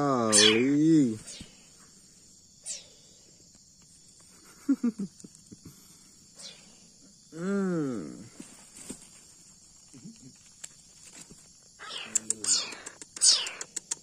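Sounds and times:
crickets chirring: 0.0s - 14.0s
kitten mewing: 0.3s - 0.7s, 11.8s - 13.8s.

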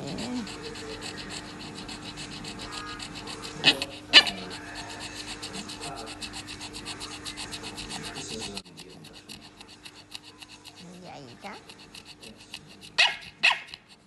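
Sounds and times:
small dog yapping: 0.0s - 6.0s, 9.5s - 13.9s
fast even ticking: 0.0s - 14.0s.

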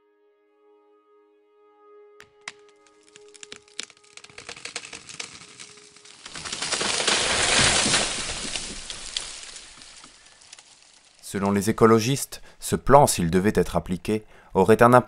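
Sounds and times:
rapid irregular cracks and clicks: 2.2s - 12.2s.

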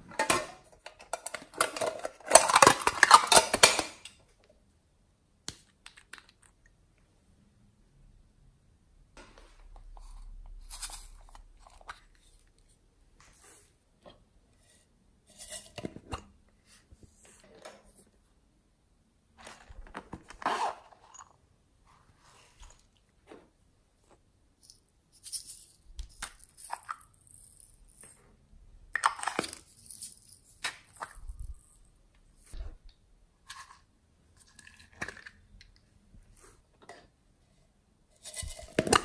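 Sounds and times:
plastic cups rustling and tapping: 0.0s - 4.1s, 15.4s - 18.1s, 19.4s - 21.4s, 28.9s - 31.9s, 32.5s - 37.2s, 38.1s - 39.0s.

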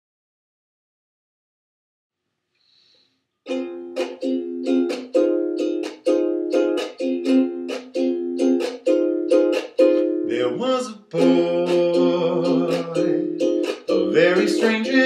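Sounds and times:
ukulele strummed: 3.5s - 15.0s.

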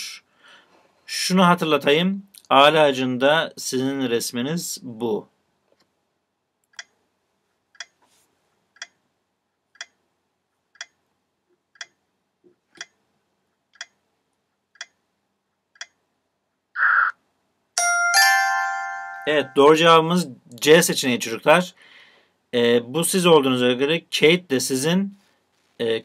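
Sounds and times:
clock ticking: 6.7s - 7.0s, 7.7s - 8.0s, 8.6s - 16.1s
chime: 17.8s - 19.9s.

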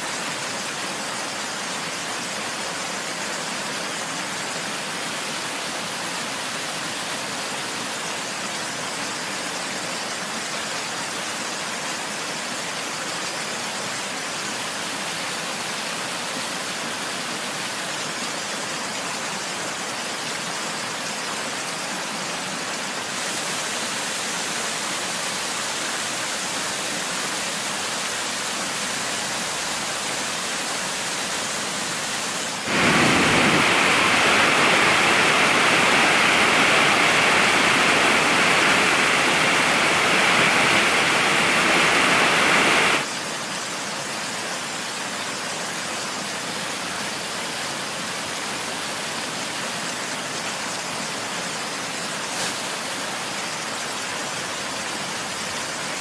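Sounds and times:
waterfall rushing: 21.6s - 45.2s.

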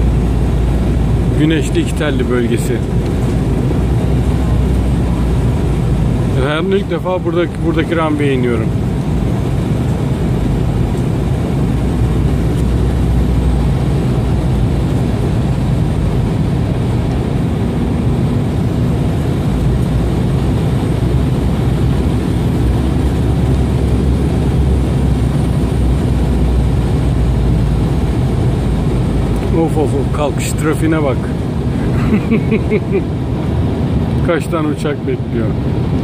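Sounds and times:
airliner cabin engine noise: 0.0s - 36.0s.

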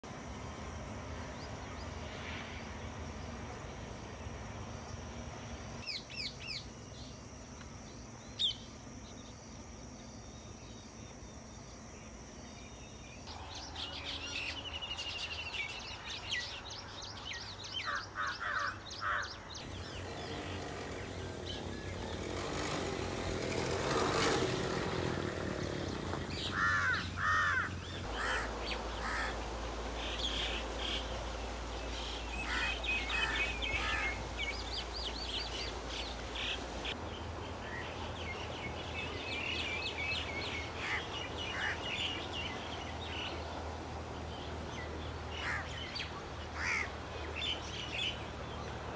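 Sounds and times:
outdoor background hiss: 0.0s - 48.9s
birds chirping and calling: 12.8s - 22.8s, 26.1s - 43.6s, 44.4s - 48.2s.

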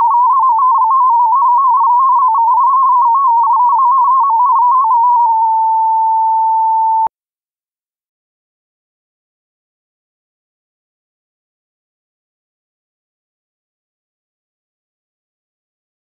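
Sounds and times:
tone hopping between pitches: 0.0s - 6.3s.

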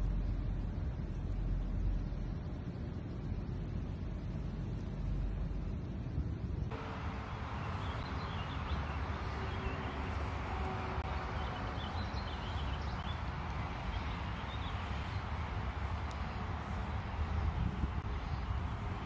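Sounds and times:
steady low rumble: 0.0s - 19.0s
faint birds chirping: 6.7s - 19.0s.

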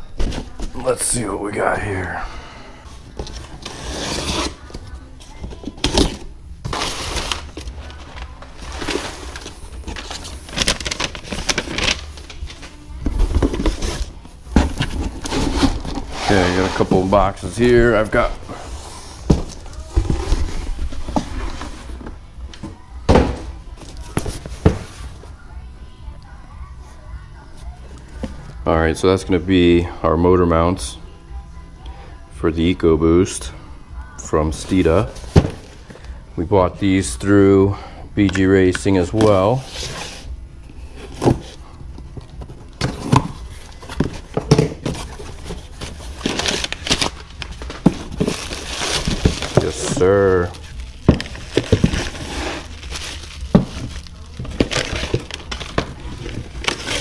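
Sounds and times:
plastic wrapping crinkling: 3.1s - 22.1s, 42.2s - 57.0s
packing material rustling: 3.2s - 22.1s, 42.6s - 57.0s
knocks and thumps on cardboard box: 51.1s - 52.3s.

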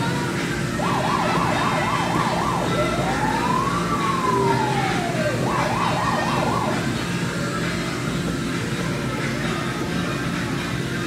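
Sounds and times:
electronic siren sweeping: 0.8s - 7.2s.

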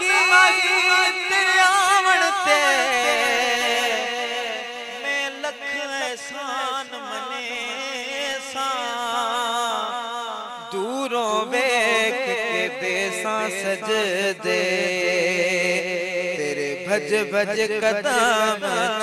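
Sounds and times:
man singing ornamented notes: 0.0s - 19.0s.

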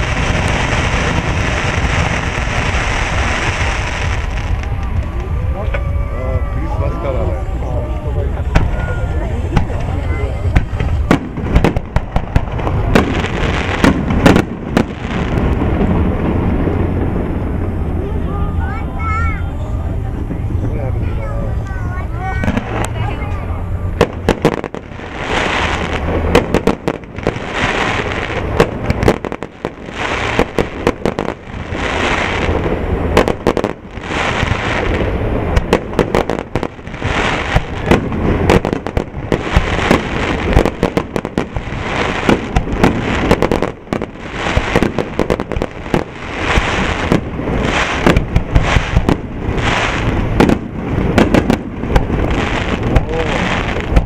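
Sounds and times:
firework hiss: 0.0s - 20.6s, 21.2s - 54.0s
firework shells bursting: 24.0s - 54.0s.

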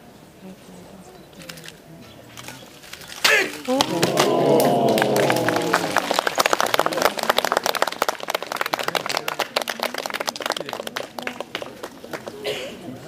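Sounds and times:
voices exclaiming: 3.2s - 6.4s
spectators applauding: 3.7s - 12.7s.

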